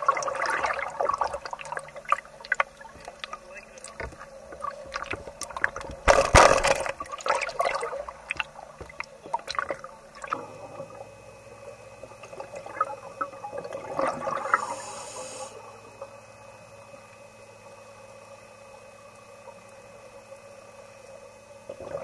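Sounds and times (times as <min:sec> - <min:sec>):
water splashing and gurgling: 0:00.0 - 0:15.1, 0:21.7 - 0:22.0
faint steady hum: 0:00.0 - 0:22.0.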